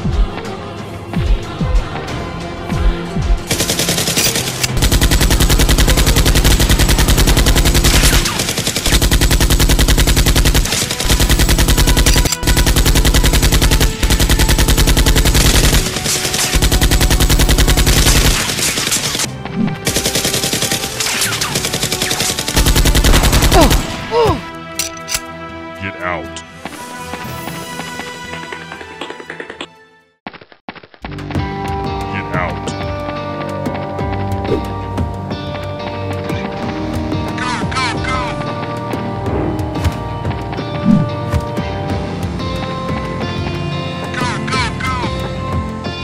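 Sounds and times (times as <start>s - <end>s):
rapid automatic gunfire: 3.5s - 19.3s, 19.9s - 24.0s.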